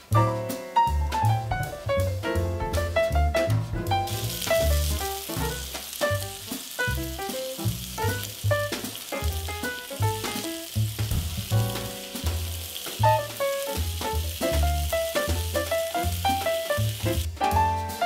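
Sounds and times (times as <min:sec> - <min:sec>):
jazz music: 0:00.0 - 0:18.0
meat sizzling on grill pan: 0:04.1 - 0:17.4.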